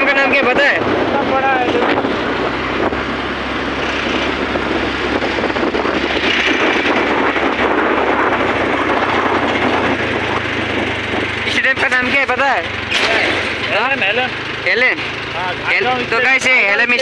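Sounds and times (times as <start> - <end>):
wind rushing over microphone: 0.0 - 12.3
motorbike engine and road hum: 0.0 - 17.0.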